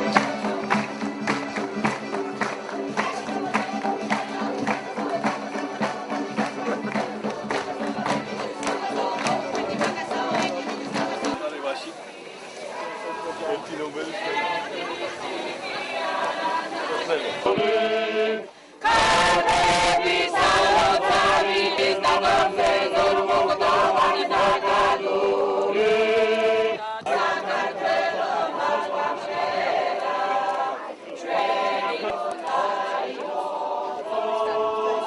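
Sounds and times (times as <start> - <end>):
choir singing unaccompanied: 0.0 - 35.0.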